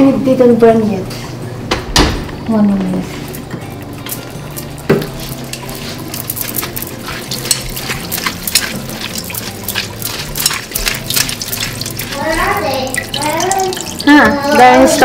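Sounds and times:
hands squeezing wet cabbage: 3.1s - 15.0s
tap water running into colander: 4.0s - 15.0s
sharp splashes and clicks: 5.0s - 14.1s.

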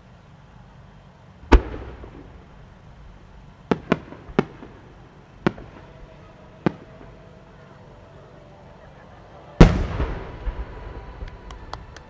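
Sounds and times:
firework cracks: 1.4s - 7.1s, 9.6s - 12.0s
firework boom with rumbling tail: 9.6s - 11.0s.

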